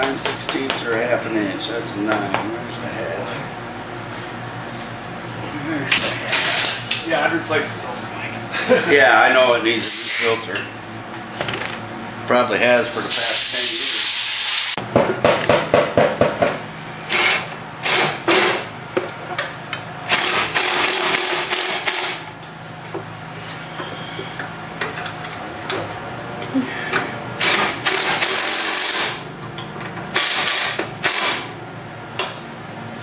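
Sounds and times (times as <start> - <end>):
impact driver hammering: 14.9 - 18.7, 20.1 - 22.3, 27.4 - 29.2, 30.1 - 31.5.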